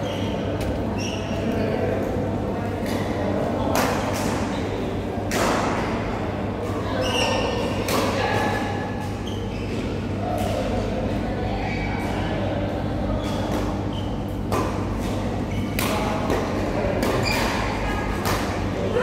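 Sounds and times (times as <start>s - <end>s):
racket hitting shuttlecock: 14.5s - 18.6s.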